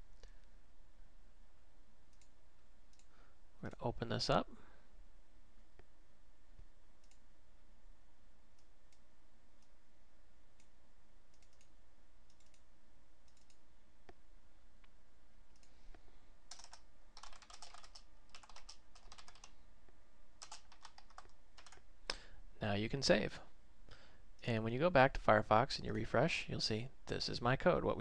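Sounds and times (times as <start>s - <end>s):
faint clicks: 2.1s - 3.2s, 7.0s - 7.2s, 10.6s - 12.7s, 13.3s - 14.2s
typing on computer keyboard: 16.5s - 19.6s, 20.4s - 21.8s.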